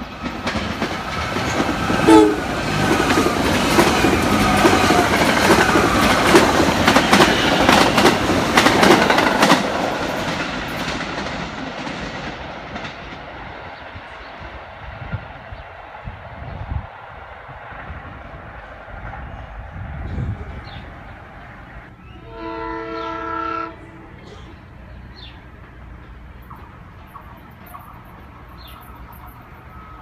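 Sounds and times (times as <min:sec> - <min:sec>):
wheels clacking over rail joints: 0:00.0 - 0:13.3, 0:24.2 - 0:30.0
train passing at speed: 0:00.0 - 0:30.0
train horn blast: 0:01.9 - 0:02.9, 0:04.1 - 0:06.2, 0:22.1 - 0:24.3.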